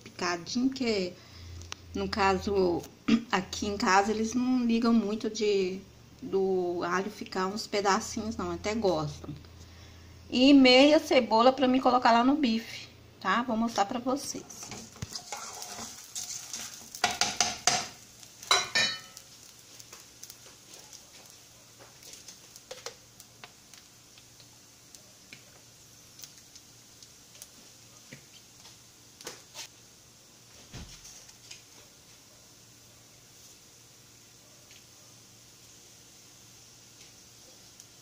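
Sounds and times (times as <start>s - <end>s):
faint steady hiss: 0.0s - 38.0s
metal pots and pans clattering: 14.6s - 19.2s.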